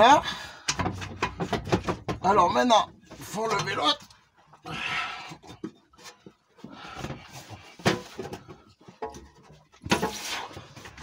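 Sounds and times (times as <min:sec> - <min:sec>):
person breathing with strain: 0:00.2 - 0:01.0, 0:04.6 - 0:05.7, 0:06.6 - 0:08.9
knocks and rubbing of metal and rubber: 0:00.7 - 0:03.4, 0:05.4 - 0:11.0.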